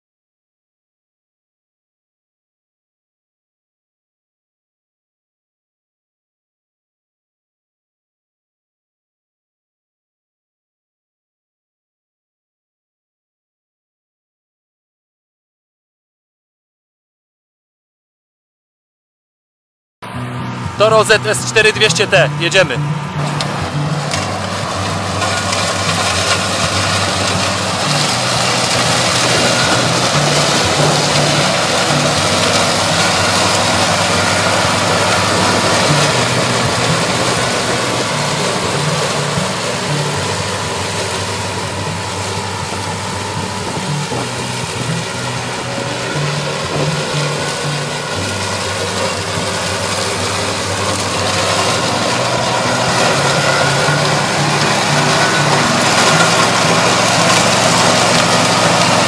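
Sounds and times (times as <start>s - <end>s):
ride-on mower cutting grass: 20.0s - 59.0s.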